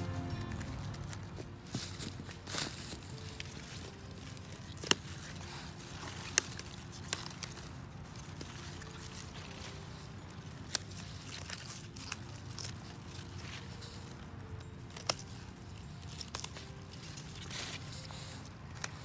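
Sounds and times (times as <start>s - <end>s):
scissors snipping stalks: 0.0s - 8.5s, 14.8s - 19.0s
leaves and stems crackling: 0.0s - 19.0s.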